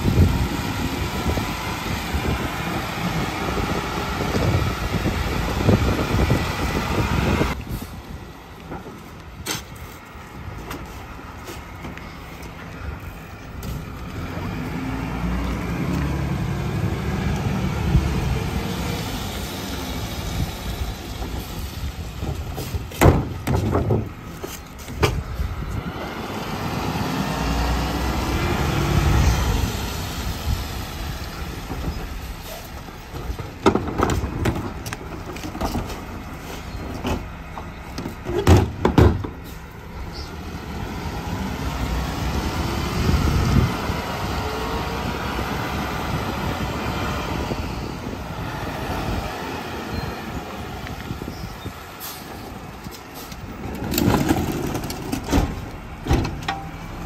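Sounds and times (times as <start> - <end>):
garbage truck engine revving: 25.6 - 33.2
plastic carts banging on hopper: 53.8 - 56.6.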